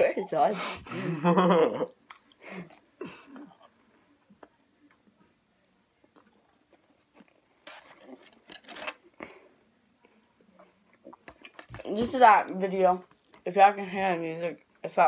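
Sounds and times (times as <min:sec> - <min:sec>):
chewing and crunching crackers: 0:02.0 - 0:09.4, 0:10.0 - 0:11.9
crackers rustling on plastic tray: 0:07.1 - 0:09.1.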